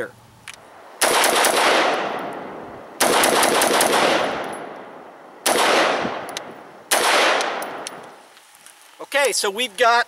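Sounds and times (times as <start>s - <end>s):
rifle shots echoing: 0.9s - 8.1s.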